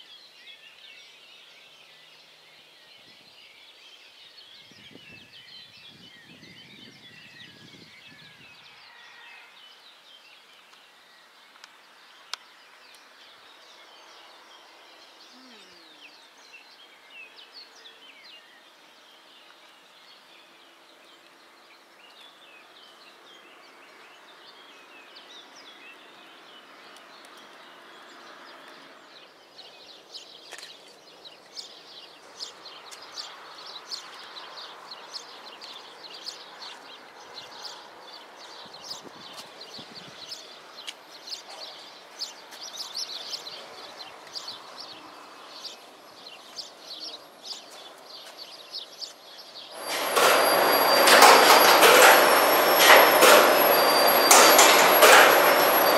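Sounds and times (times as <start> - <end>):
small birds chirping: 9.9 - 55.9
sharp click: 49.8 - 55.9.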